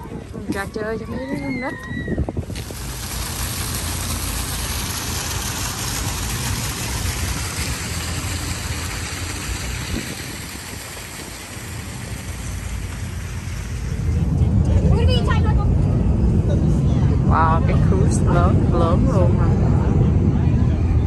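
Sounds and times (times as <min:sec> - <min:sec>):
fountain jets splashing: 0:00.0 - 0:15.3.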